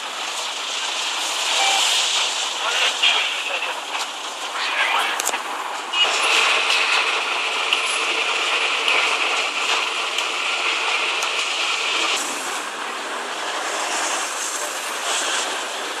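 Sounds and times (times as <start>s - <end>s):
traffic hiss: 0.0s - 9.7s, 10.3s - 16.0s.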